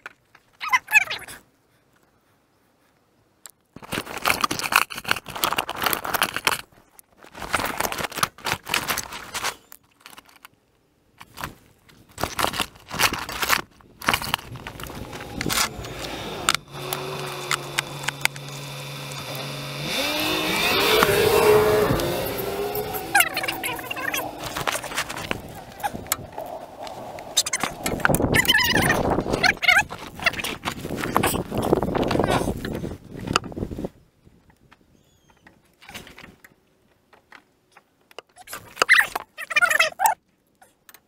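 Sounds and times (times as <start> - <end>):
steady low hum: 14.6 - 29.3.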